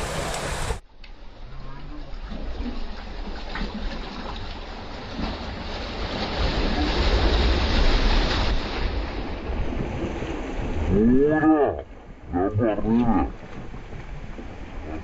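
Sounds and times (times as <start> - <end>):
waves splashing over rocks: 0.0 - 1.3, 2.2 - 15.0.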